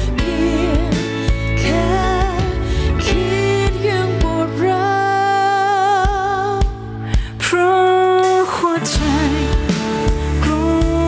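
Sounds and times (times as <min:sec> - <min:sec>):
steady bass: 0:00.0 - 0:07.3, 0:08.9 - 0:11.0
woman singing with vibrato: 0:00.0 - 0:11.0
band accompaniment: 0:09.0 - 0:11.0.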